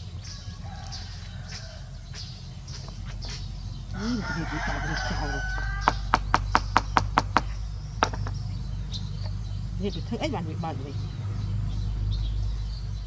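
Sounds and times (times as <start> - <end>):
rooster crowing: 0.2 - 3.1, 3.9 - 6.5
sharp taps: 5.5 - 8.4.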